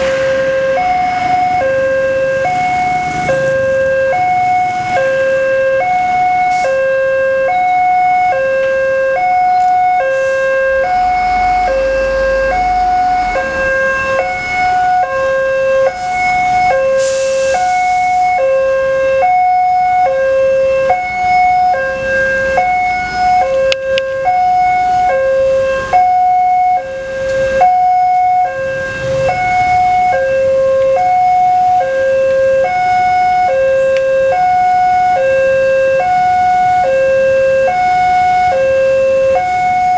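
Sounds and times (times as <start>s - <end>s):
faint passing road traffic: 0.0s - 7.1s, 9.4s - 18.4s, 20.4s - 34.8s
level crossing two-tone alarm: 0.0s - 39.9s.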